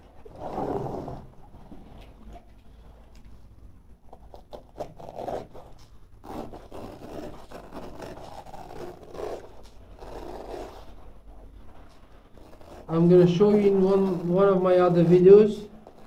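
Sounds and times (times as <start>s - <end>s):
utility knife cutting carpet: 12.4s - 16.0s.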